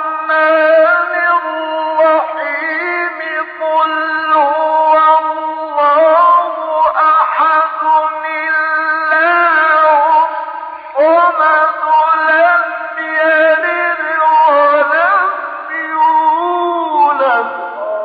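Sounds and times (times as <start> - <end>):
solo voice chanting: 0.0 - 18.0.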